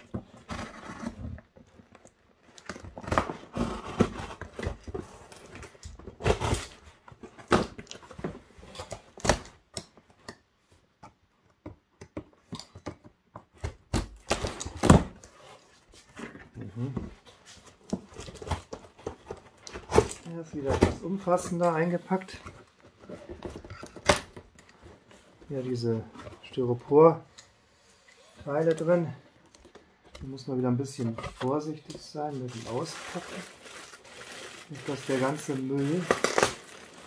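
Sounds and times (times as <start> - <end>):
tape tearing: 32.5 - 37.0.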